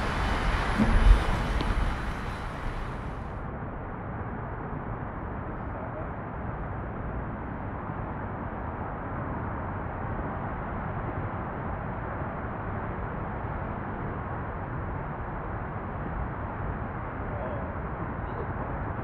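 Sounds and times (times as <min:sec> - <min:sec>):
outdoor rumbling hiss: 0:00.0 - 0:03.4.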